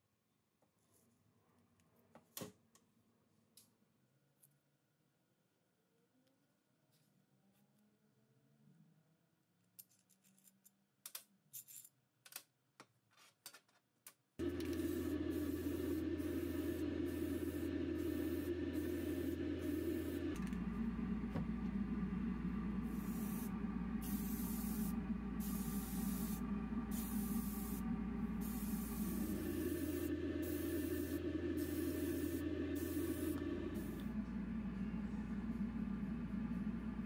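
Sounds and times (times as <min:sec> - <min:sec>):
motor running: 0:14.4 - 0:37.0
air hissing in bursts: 0:22.8 - 0:27.8, 0:28.4 - 0:34.0.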